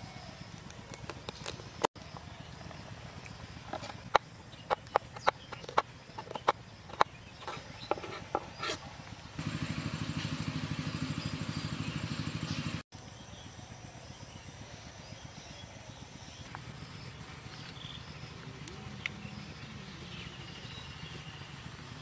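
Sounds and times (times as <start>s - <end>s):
knife chopping on wooden board: 3.8s - 8.8s.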